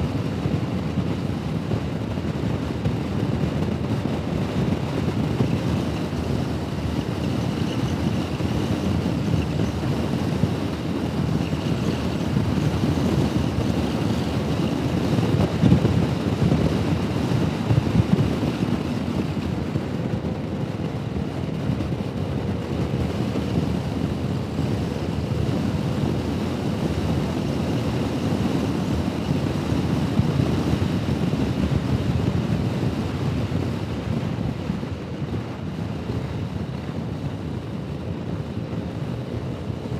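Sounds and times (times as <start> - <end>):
scooter engine drone: 0.0 - 39.9
wind rush over microphone: 0.0 - 39.9.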